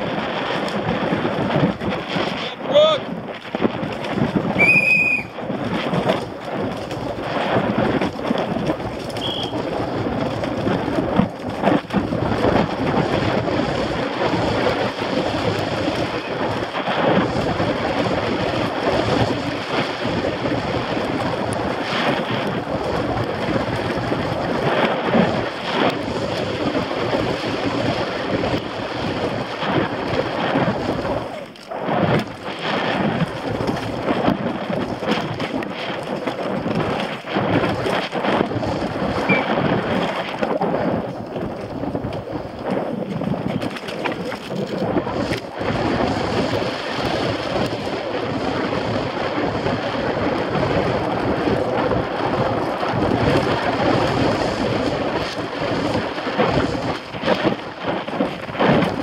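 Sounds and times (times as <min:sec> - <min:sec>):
bike rattling over roots and dirt: 0:00.0 - 0:59.0
wind rush on microphone: 0:00.0 - 0:59.0
high whistle-like tone: 0:04.6 - 0:05.3, 0:09.2 - 0:09.6, 0:39.3 - 0:39.6.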